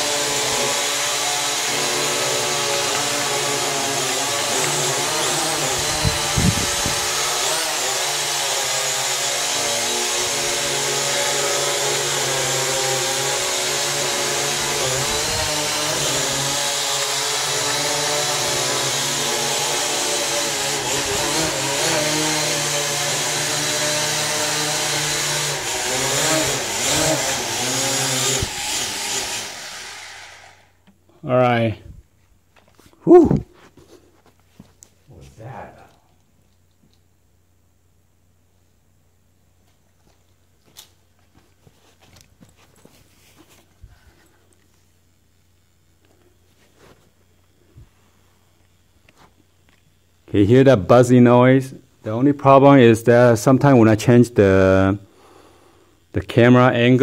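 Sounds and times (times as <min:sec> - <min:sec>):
drone motors buzzing: 0:00.0 - 0:07.6, 0:12.7 - 0:30.7.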